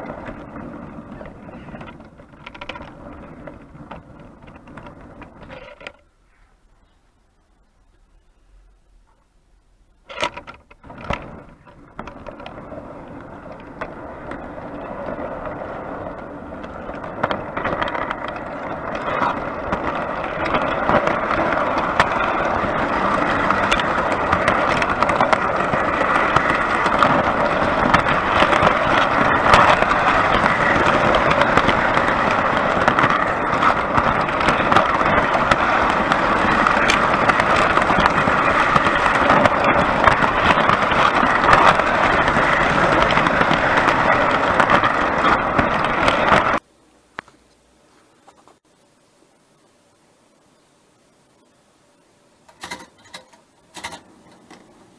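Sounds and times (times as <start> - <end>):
model train wheels rumbling: 0.0 - 6.2, 7.2 - 46.7, 52.4 - 54.9
model train clanks: 52.5 - 54.9.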